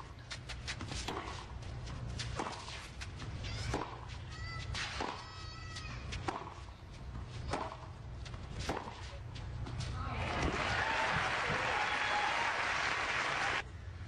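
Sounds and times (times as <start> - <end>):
tennis ball struck by rackets: 3.7 - 4.1, 4.7 - 5.3, 6.1 - 6.7, 7.4 - 9.1.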